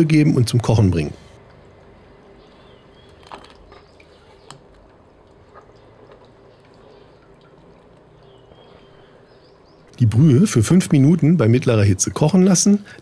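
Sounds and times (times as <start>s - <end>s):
broth bubbling in a saucepan: 1.5s - 10.0s.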